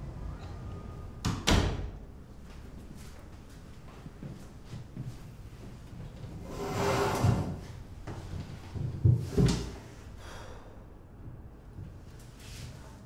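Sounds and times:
metal chair scraping on floor: 6.4 - 7.8.

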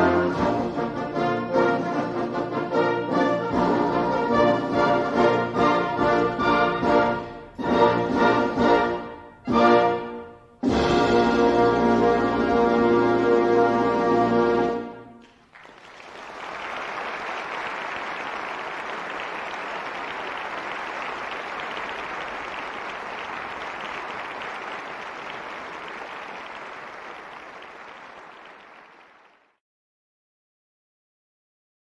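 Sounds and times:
audience applause: 15.2 - 29.6.

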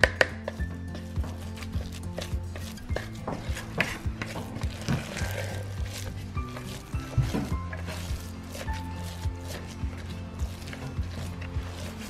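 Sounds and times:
soft thumping beat: 0.0 - 11.8.

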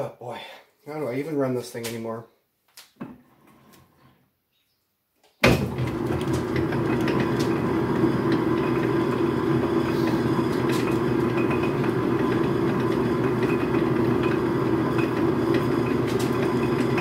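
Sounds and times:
metal lathe running: 5.7 - 17.0.

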